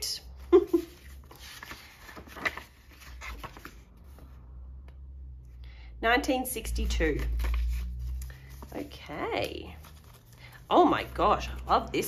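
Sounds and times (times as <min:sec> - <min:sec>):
paper cards rustling and scraping: 0:00.2 - 0:04.4, 0:06.7 - 0:12.0.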